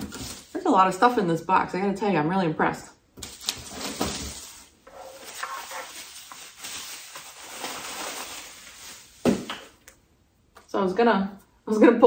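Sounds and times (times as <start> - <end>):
packing paper and plastic rustling: 0.0 - 0.7, 3.2 - 9.8.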